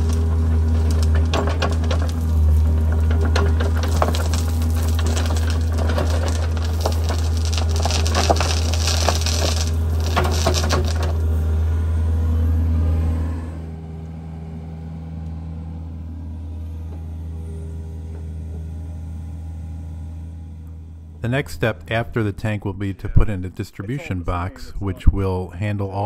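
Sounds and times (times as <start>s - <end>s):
falling dirt clattering: 0.0s - 11.4s
excavator diesel engine: 0.0s - 25.6s.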